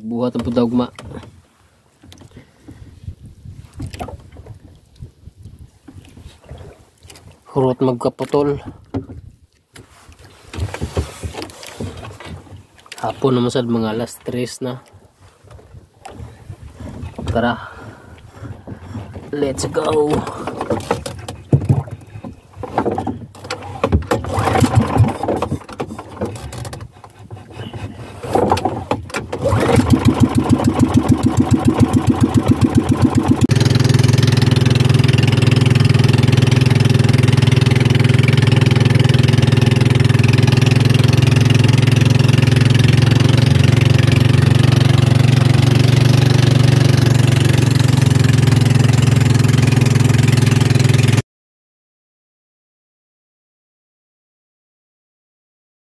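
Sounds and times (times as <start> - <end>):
boat engine puttering: 16.0 - 51.2
knocks and clatter: 20.1 - 27.4.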